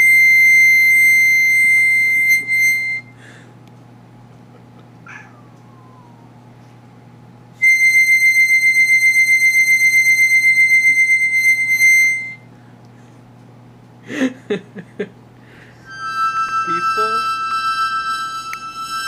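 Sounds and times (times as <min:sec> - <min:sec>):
harmonica note: 0:00.0 - 0:03.4, 0:07.6 - 0:12.5, 0:15.5 - 0:19.0
cat meowing: 0:05.1 - 0:06.3.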